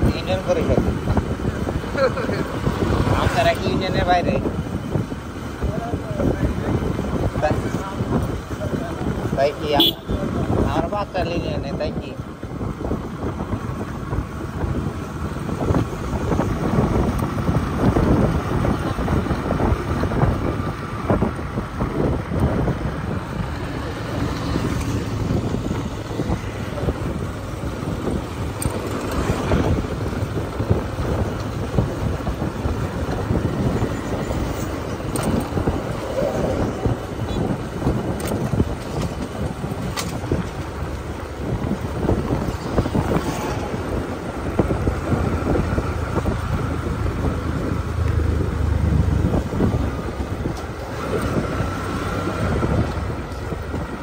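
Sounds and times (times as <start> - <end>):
wind buffeting microphone: 0.0 - 54.0
tyre noise: 15.5 - 54.0.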